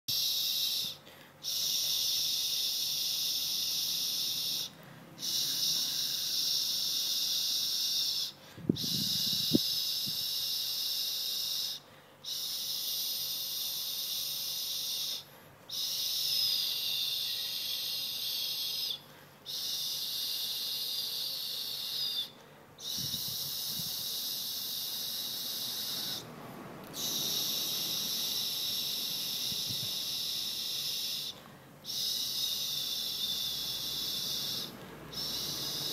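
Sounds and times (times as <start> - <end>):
high hissing buzz: 0.1 - 35.9.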